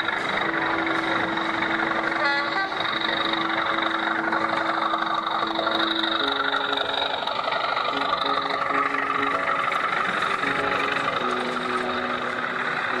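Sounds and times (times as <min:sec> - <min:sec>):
model locomotive engine drone: 0:00.0 - 0:13.0
model train horn toot: 0:02.1 - 0:03.0.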